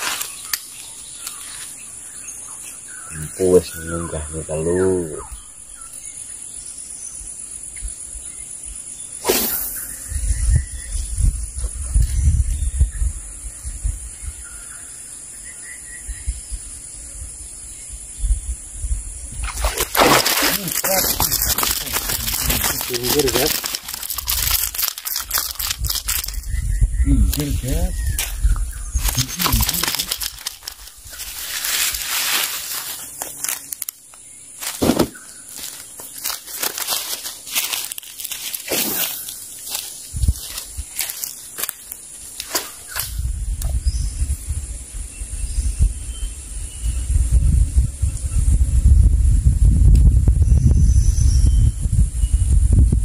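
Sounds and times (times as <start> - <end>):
rustling crackling noise: 0.0 - 1.8, 19.5 - 43.2
high insect drone: 0.0 - 49.8
faint bird chirps: 0.2 - 18.4
wind rumbling on microphone: 9.8 - 14.9, 15.8 - 33.2, 39.7 - 53.0
loud thump: 34.8 - 35.2.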